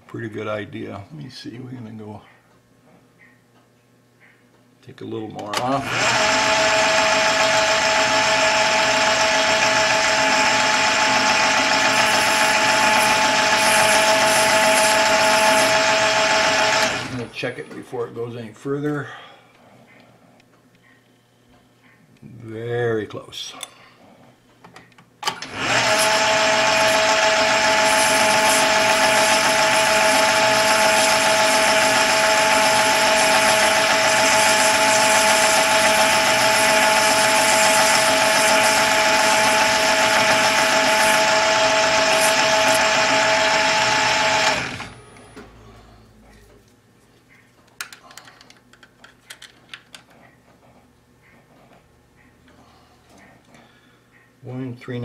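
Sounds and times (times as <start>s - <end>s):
metal lathe whining: 5.8s - 17.4s, 25.3s - 45.3s.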